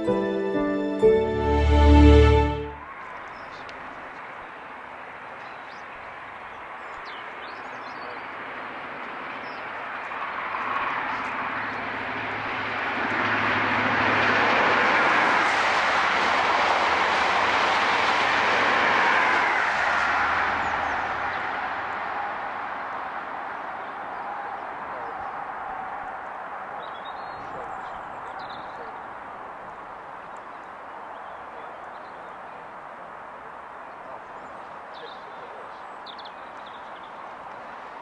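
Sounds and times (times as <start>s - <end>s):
train wheels rushing on rails: 11.8s - 23.2s.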